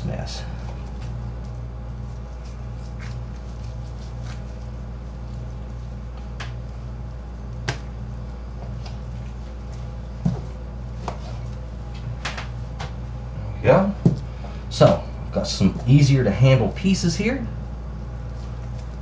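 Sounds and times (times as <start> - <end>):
knife cutting meat: 2.0 - 5.2.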